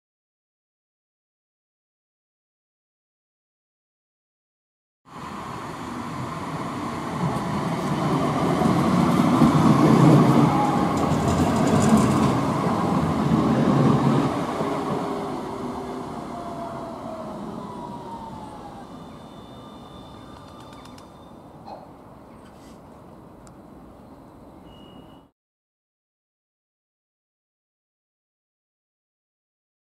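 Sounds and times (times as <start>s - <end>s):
tram whine: 5.1s - 21.6s
tram rumbling on rails: 5.1s - 22.2s.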